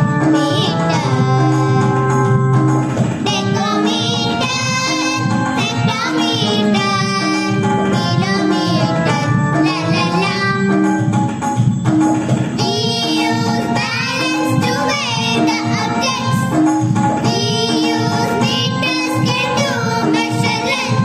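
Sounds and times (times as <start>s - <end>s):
instrumental accompaniment: 0.0s - 21.0s
young voice singing: 12.6s - 16.5s.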